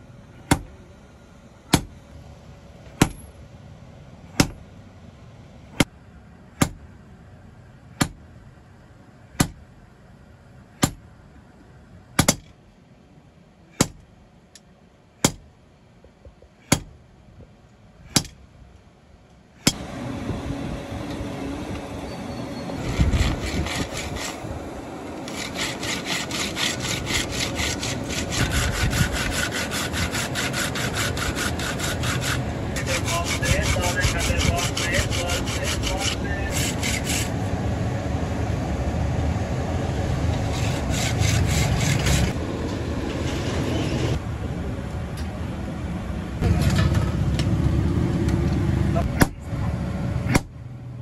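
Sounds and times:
hand saw cutting wood: 0:22.8 - 0:24.6, 0:25.2 - 0:37.4, 0:40.3 - 0:42.4.

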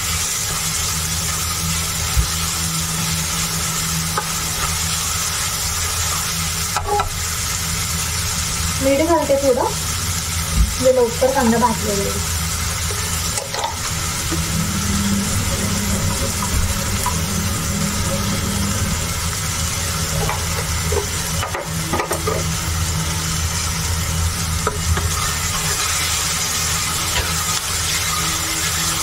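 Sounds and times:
onions sizzling in oil: 0:00.0 - 0:29.0
low hum: 0:10.5 - 0:29.0.

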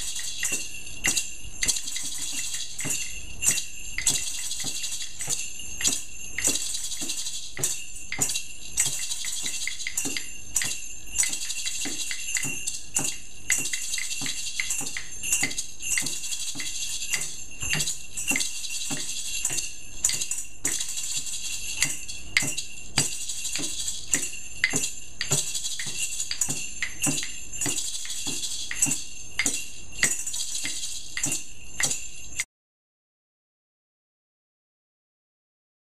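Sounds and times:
hand-drum beats: 0:00.0 - 0:32.4
maraca rattle: 0:00.0 - 0:32.5
tambourine jingles: 0:00.0 - 0:32.5
wood-block clicks: 0:00.0 - 0:32.5.

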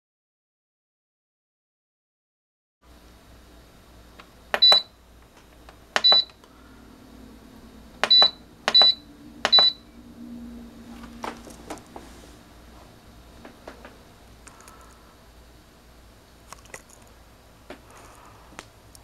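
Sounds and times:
short high beeps: 0:06.0 - 0:06.3, 0:08.0 - 0:09.9.

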